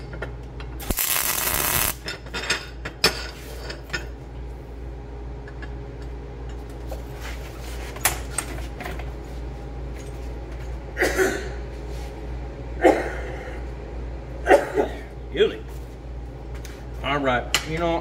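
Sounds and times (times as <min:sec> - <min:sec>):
low hum of workshop: 0:00.0 - 0:18.0.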